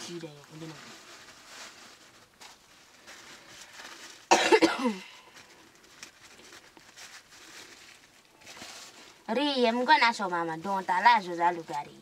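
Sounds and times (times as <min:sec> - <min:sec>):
person coughing: 0:04.3 - 0:05.2.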